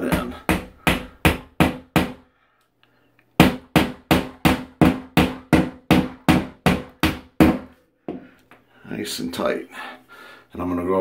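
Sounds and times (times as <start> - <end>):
hammer tapping a nail: 0.0 - 2.2, 3.4 - 8.2.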